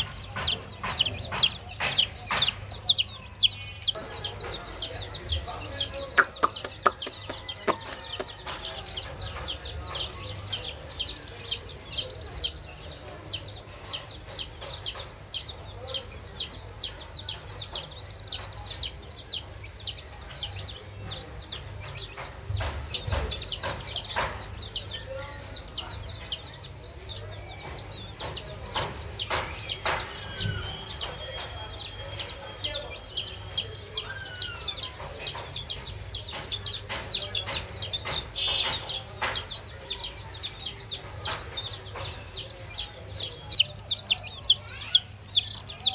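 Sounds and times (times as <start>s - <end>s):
knocks: 0.0s - 3.3s, 21.0s - 31.6s, 34.5s - 43.4s
baby chicks peeping: 0.0s - 45.9s.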